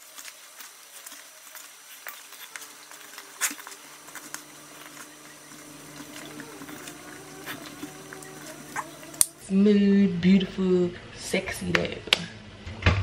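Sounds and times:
hands kneading dough: 0:00.0 - 0:09.4
pot of water bubbling: 0:01.2 - 0:09.4.

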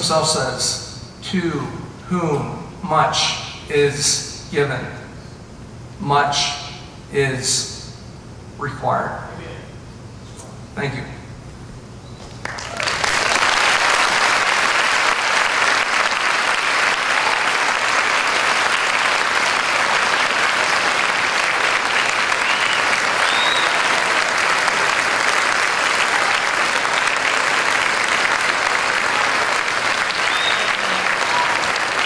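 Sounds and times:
audience applauding: 0:12.3 - 0:32.0.

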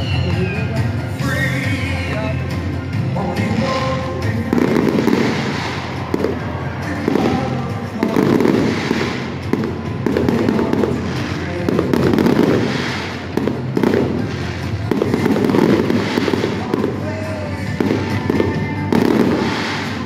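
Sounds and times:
fireworks shells bursting: 0:04.5 - 0:20.0.

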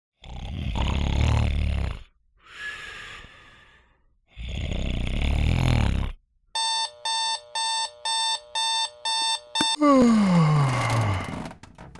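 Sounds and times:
person snoring: 0:00.2 - 0:06.2, 0:09.8 - 0:11.5
alarm clock beeping: 0:06.6 - 0:09.8.

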